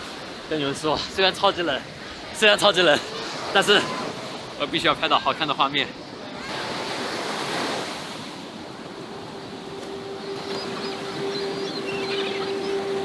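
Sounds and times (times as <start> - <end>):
ocean surf on a beach: 0.0 - 13.0
wind: 0.0 - 13.0
faint high chirping calls: 9.4 - 13.0.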